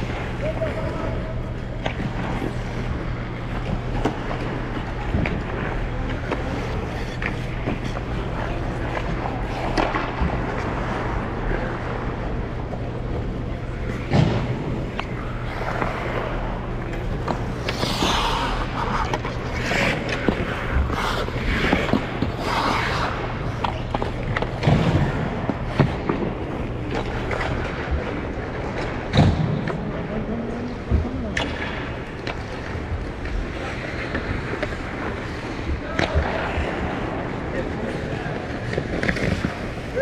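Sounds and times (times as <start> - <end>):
steady low hum: 0.0 - 40.0
ice skates scraping on ice: 1.9 - 13.1, 13.7 - 28.7.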